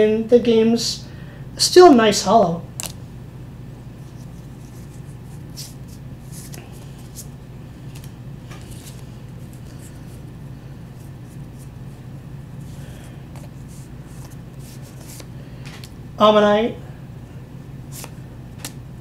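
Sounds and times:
steady low hum: 0:00.0 - 0:19.0
cards rustling: 0:02.8 - 0:03.0, 0:04.0 - 0:16.0, 0:17.8 - 0:18.8.

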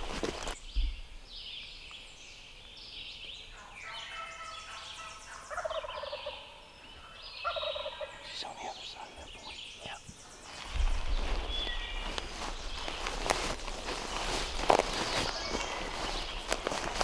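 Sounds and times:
turkeys gobbling in the distance: 0:03.6 - 0:08.4.

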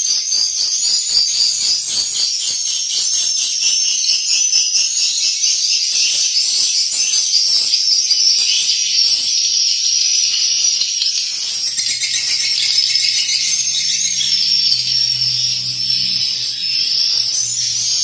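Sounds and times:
swiftlets twittering: 0:11.2 - 0:18.0.

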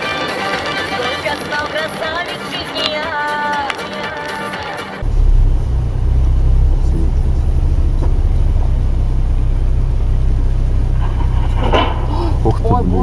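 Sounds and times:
car driving low rumble: 0:05.0 - 0:13.0.

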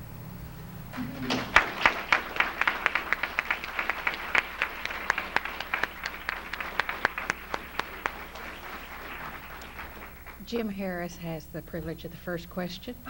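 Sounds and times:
audience applauding: 0:00.9 - 0:10.6.

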